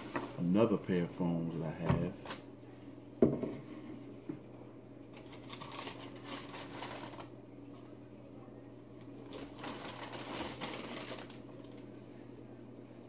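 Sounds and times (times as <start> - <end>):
tissue paper rustling: 5.2 - 7.3, 9.2 - 13.0.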